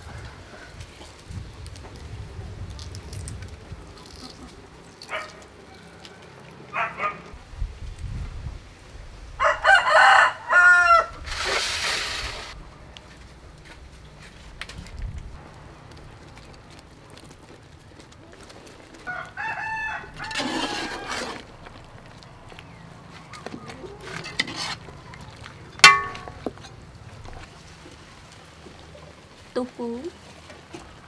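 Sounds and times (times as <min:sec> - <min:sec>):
rooster crowing: 0:09.4 - 0:11.2, 0:19.0 - 0:21.4.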